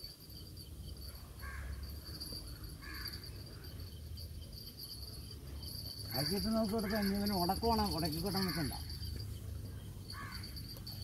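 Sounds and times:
high-pitched insect drone: 0.0 - 11.0
bird harsh calls: 1.4 - 3.8, 10.1 - 10.6.

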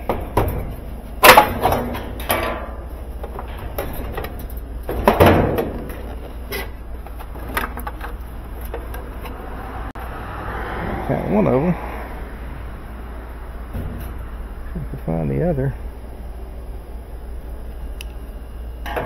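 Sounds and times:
plastic and metal clunks and rattles: 0.0 - 9.4.

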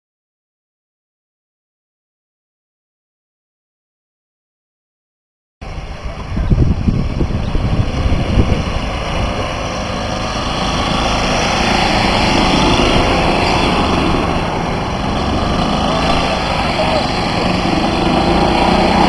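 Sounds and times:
golf cart engines droning: 5.6 - 19.0.

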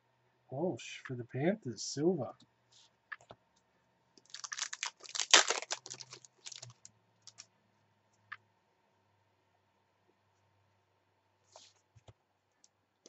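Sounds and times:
foil wrapper tearing and crinkling: 4.3 - 7.4.

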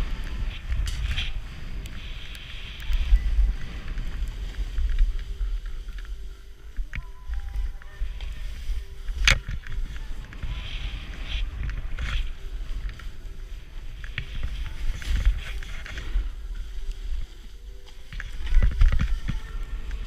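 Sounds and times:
snowboard sliding through powder: 0.0 - 20.0.

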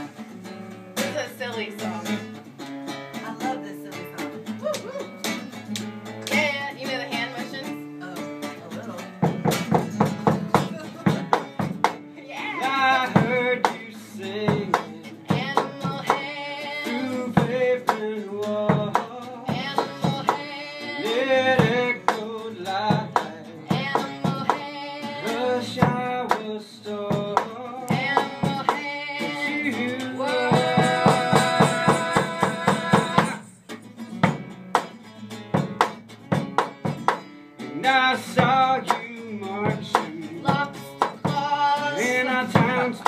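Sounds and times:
percussion beat: 0.0 - 43.0
voices singing: 12.2 - 33.6, 37.7 - 43.0.

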